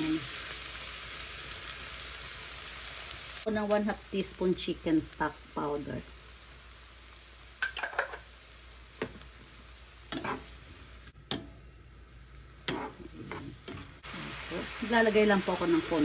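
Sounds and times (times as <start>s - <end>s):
vegetables sizzling in a frying pan: 0.0s - 16.0s
wooden spatula scraping a pan: 10.1s - 10.5s, 12.7s - 14.0s.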